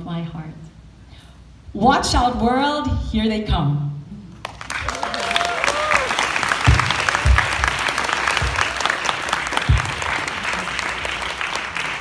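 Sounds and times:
audience applauding: 4.4 - 12.0
low thumps: 6.6 - 8.8, 9.5 - 10.3.

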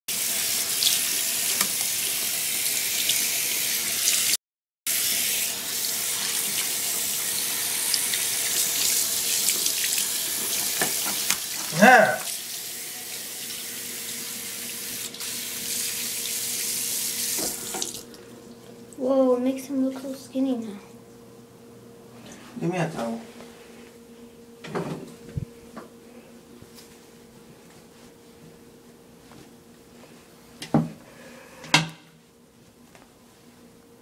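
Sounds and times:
faucet water running into sink: 0.1 - 18.2
short vocal cry: 11.7 - 12.3.

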